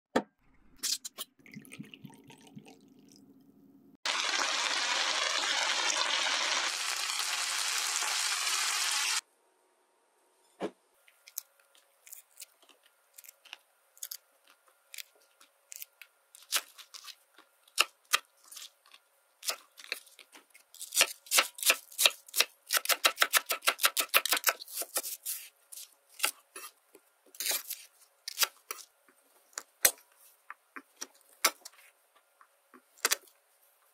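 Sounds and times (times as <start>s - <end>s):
loud steady hiss: 5.3s - 9.2s.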